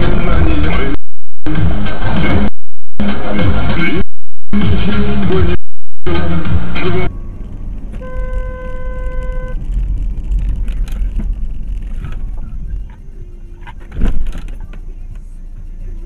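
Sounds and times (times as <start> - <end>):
engine and road rumble: 0.0 - 16.0
steady pitched tone: 0.1 - 10.6.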